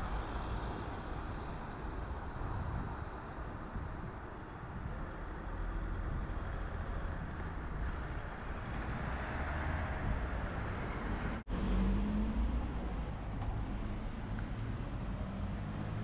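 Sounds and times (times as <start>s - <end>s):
cars driving past: 5.5s - 16.0s.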